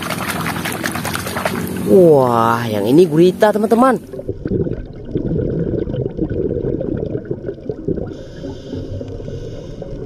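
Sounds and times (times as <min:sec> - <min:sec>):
underwater gurgling and bubbling: 0:00.0 - 0:10.0.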